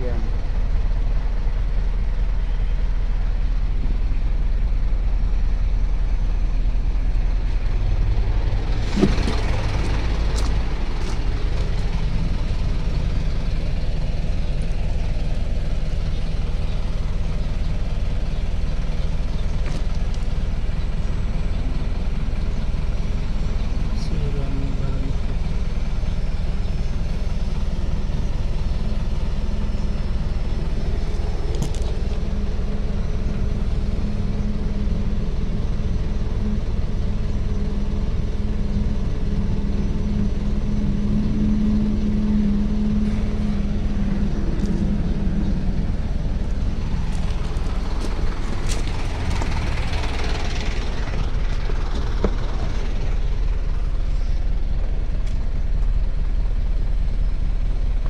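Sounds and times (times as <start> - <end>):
diesel engine idling: 0.0 - 58.0.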